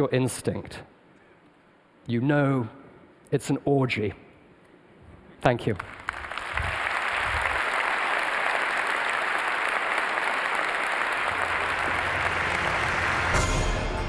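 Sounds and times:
audience applauding: 0:05.8 - 0:14.0.

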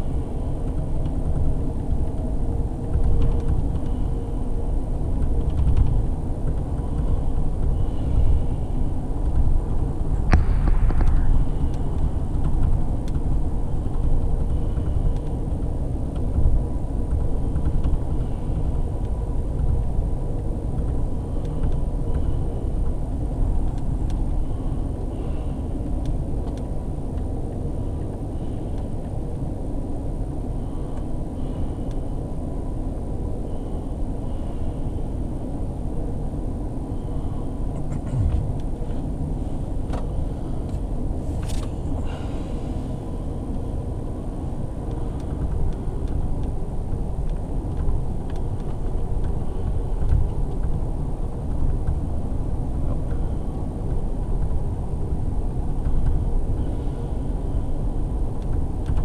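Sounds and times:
passenger train rumbling: 0:00.0 - 0:59.0
sharp knock: 0:10.3 - 0:11.2.

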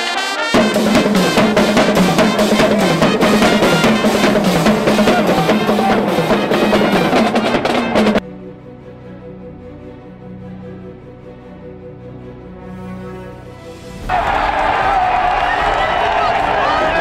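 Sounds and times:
pep band playing: 0:00.0 - 0:08.2
drumline beating: 0:00.6 - 0:08.2.

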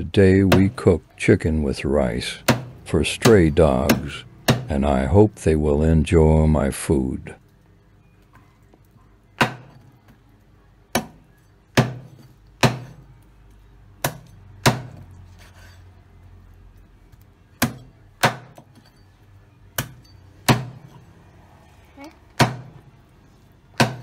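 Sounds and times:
knife chopping on wooden board: 0:02.4 - 0:04.7, 0:11.8 - 0:13.0, 0:14.0 - 0:15.7, 0:23.8 - 0:24.0.

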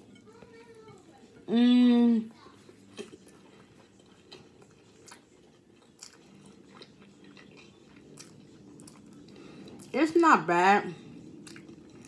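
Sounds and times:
person chewing food: 0:02.3 - 0:09.9, 0:10.9 - 0:12.0.

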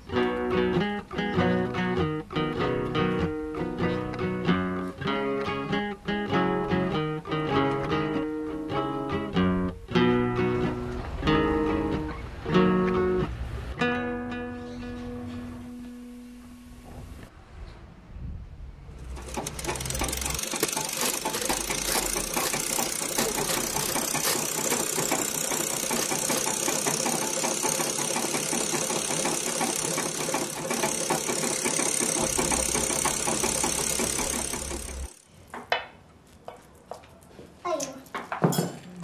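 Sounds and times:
machine rattling fast: 0:19.0 - 0:35.3.

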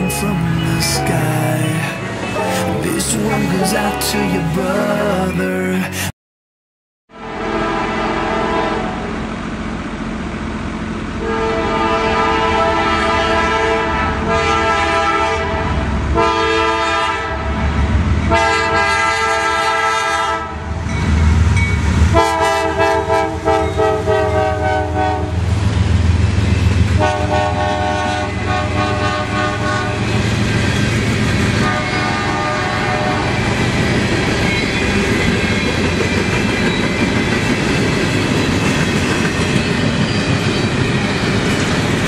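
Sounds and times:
train passing rumble: 0:00.0 - 0:06.1, 0:07.2 - 0:42.0
train air horn blasts: 0:02.3 - 0:02.8, 0:07.1 - 0:09.2, 0:11.2 - 0:17.6, 0:18.3 - 0:20.7, 0:22.1 - 0:25.5, 0:27.0 - 0:30.1, 0:31.5 - 0:33.4.

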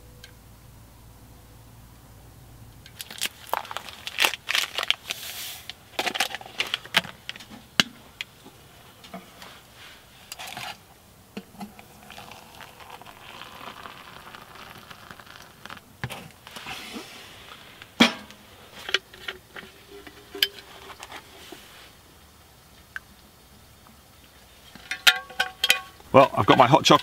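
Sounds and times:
hot water pouring into metal mug: 0:11.4 - 0:16.7
small metallic clinks and knocks: 0:18.0 - 0:21.3, 0:24.7 - 0:26.0.

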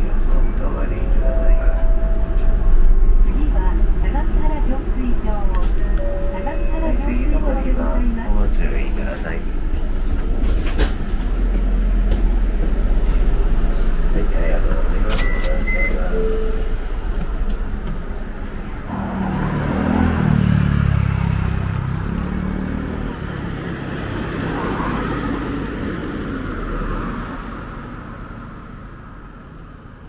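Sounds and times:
heavy vehicle engine accelerating: 0:06.7 - 0:15.2, 0:16.0 - 0:30.0
car passing: 0:16.6 - 0:30.0.

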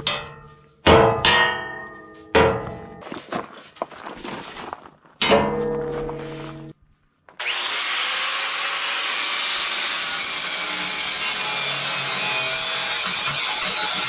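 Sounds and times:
struck steel ringing: 0:00.0 - 0:03.0, 0:05.2 - 0:06.7
angle grinder grinding metal: 0:07.4 - 0:14.0.

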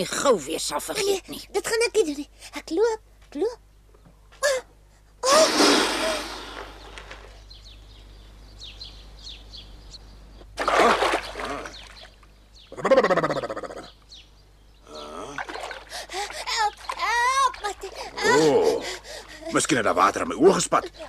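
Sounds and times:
cartoon splash: 0:05.3 - 0:06.8.

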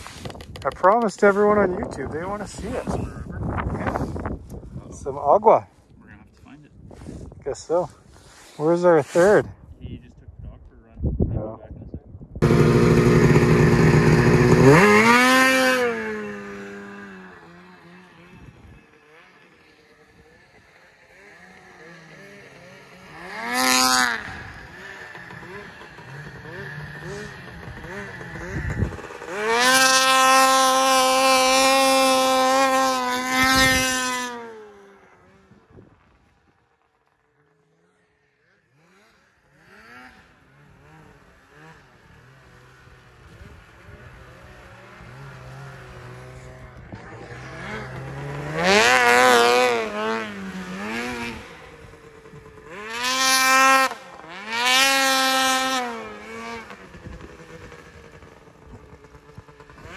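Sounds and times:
snowmobile engine revving: 0:00.0 - 0:04.3, 0:06.4 - 0:10.1, 0:12.4 - 0:59.9.

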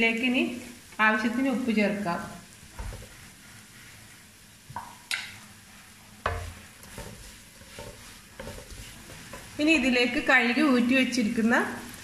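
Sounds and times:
vegetables sizzling in wok: 0:00.0 - 0:12.0
spatula knocking and scraping pan: 0:02.7 - 0:03.3, 0:06.2 - 0:10.3.

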